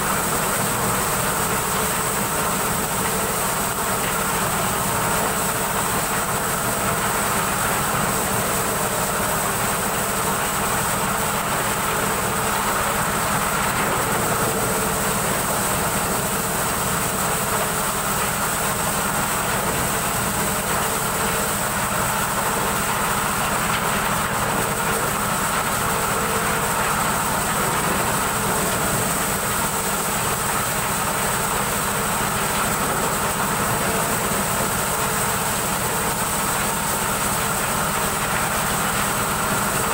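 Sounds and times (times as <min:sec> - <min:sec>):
corn sheller machine drone: 0:00.0 - 0:39.9.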